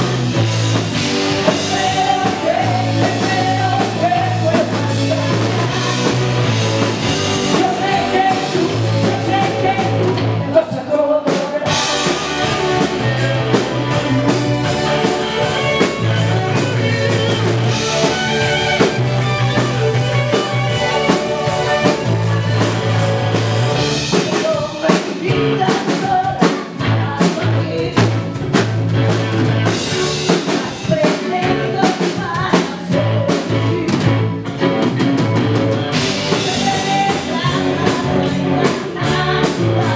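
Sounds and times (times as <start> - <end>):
electric bass low notes: 0.0 - 10.6, 11.7 - 24.2, 26.8 - 30.4, 32.9 - 39.9
drum kit: 0.0 - 39.9
electric guitar: 0.0 - 39.9
woman singing: 1.4 - 6.2, 7.4 - 11.8, 24.1 - 28.2, 30.4 - 34.3, 36.2 - 39.9.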